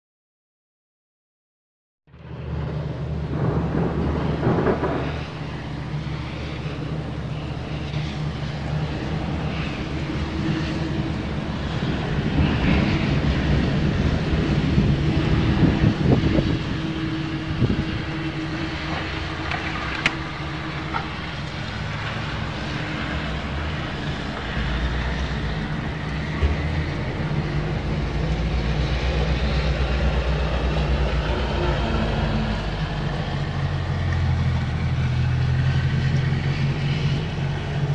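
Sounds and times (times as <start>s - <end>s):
low engine hum: 2.1s - 37.9s
vehicle noise: 2.1s - 37.9s.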